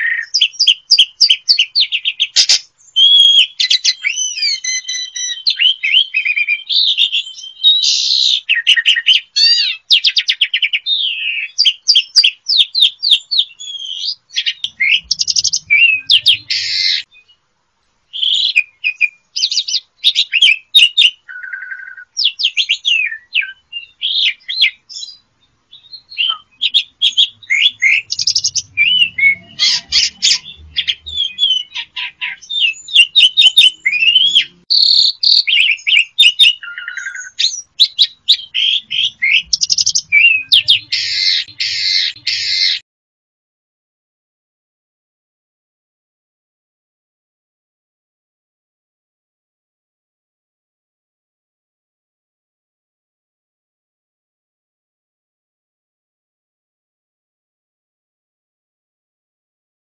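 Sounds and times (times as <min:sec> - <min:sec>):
starling singing: 0:00.0 - 0:17.1, 0:18.1 - 0:42.8.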